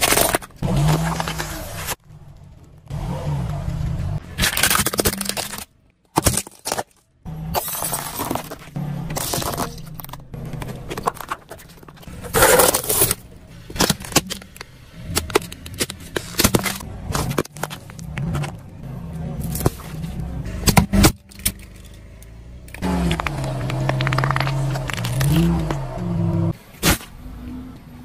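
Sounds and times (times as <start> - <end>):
car engine hum: 0.6 - 4.4, 7.2 - 28.0
plastic cracking under tyre: 4.2 - 18.7, 22.7 - 25.9.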